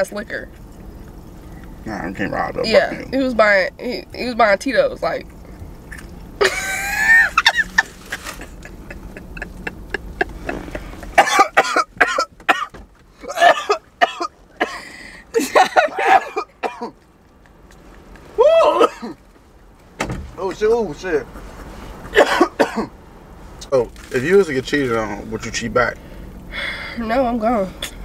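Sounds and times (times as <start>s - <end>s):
woman laughing: 6.4s - 11.6s, 15.3s - 16.6s.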